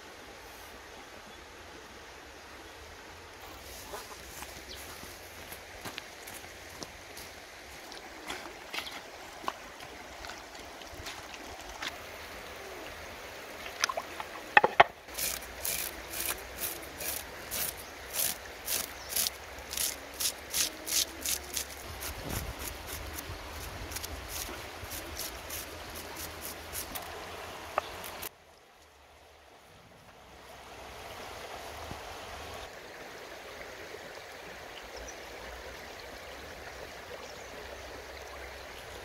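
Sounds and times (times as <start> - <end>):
faint stream trickling: 0.0 - 39.0
cleaver scraping fish scales: 15.1 - 27.2.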